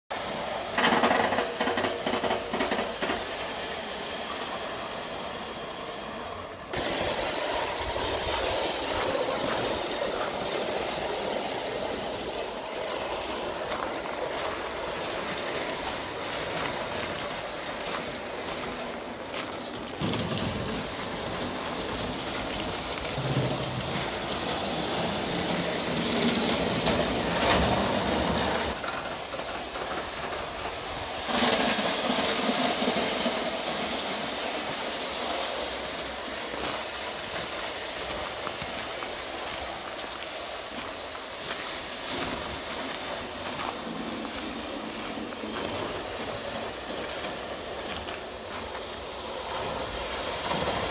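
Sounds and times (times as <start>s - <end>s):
model train wheels rolling on rail: 0.1s - 50.9s.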